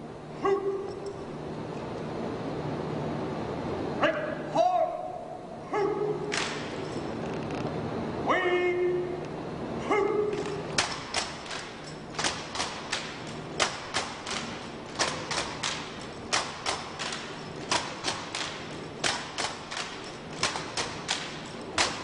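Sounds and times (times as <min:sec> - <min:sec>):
hands slapping rifles: 0:06.3 - 0:06.9, 0:10.3 - 0:22.0.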